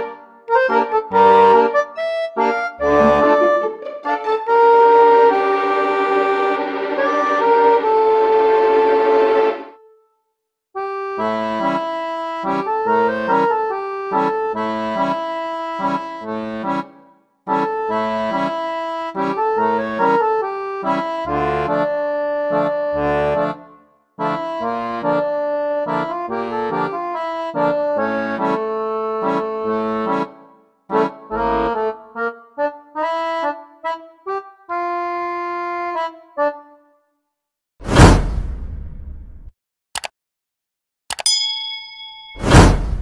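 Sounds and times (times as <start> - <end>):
instrumental background music: 0.0 - 10.0.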